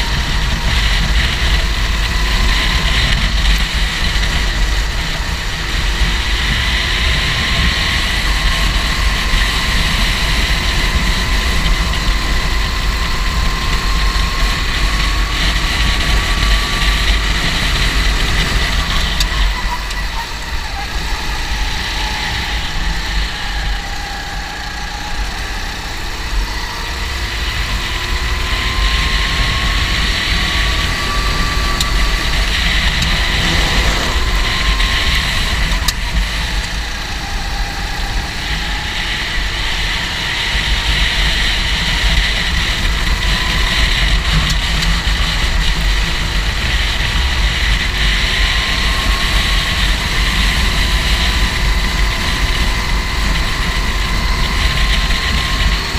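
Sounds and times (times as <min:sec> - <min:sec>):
go-kart engine revving: 0:00.0 - 0:55.9
low rumble: 0:28.9 - 0:37.5.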